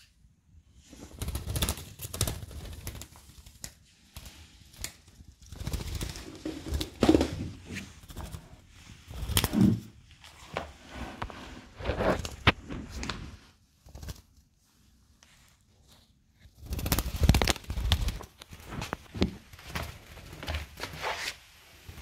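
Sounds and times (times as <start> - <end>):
claws scrabbling on tiles: 0.9 - 14.5, 16.4 - 22.0
bird wings flapping: 1.1 - 8.5, 9.1 - 9.7, 13.8 - 14.3, 16.6 - 21.0.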